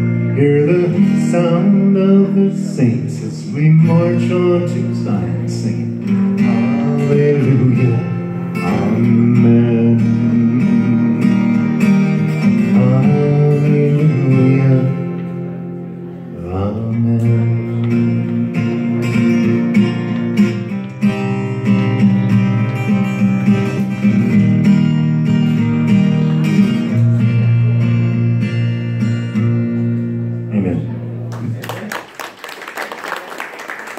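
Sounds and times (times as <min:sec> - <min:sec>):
acoustic guitar strumming: 0:00.0 - 0:31.3.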